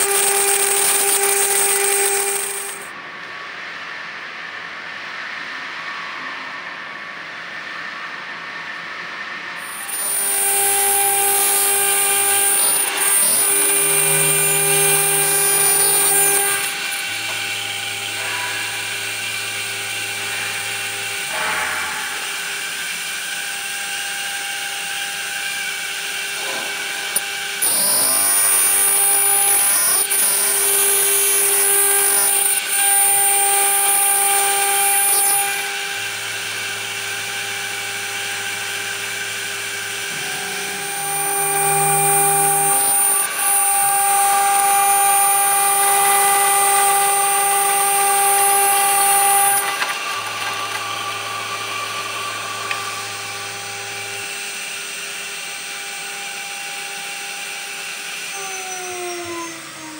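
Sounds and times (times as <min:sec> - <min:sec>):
metal cutting screech: 0:00.0 - 0:02.9, 0:09.6 - 0:19.2, 0:26.3 - 0:35.8, 0:39.6 - 0:54.5
router spindle whine: 0:00.0 - 0:03.8, 0:07.6 - 0:59.9.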